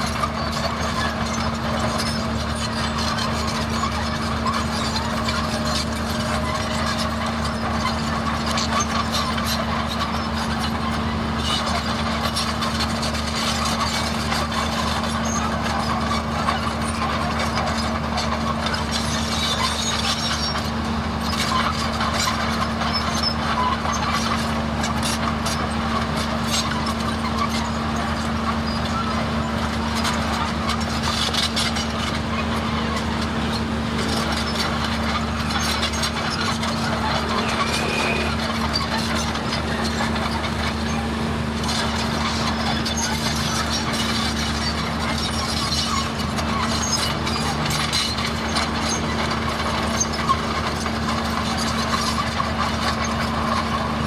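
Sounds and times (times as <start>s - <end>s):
heavy diesel engine running: 0.0s - 54.0s
metal clanks and rattles: 29.7s - 53.9s.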